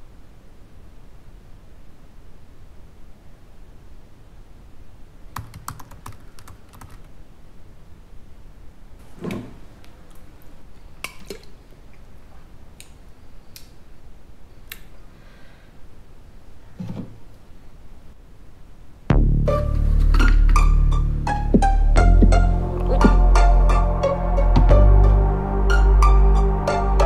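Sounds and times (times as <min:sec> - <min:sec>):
typing on a laptop keyboard: 0:05.4 - 0:07.1.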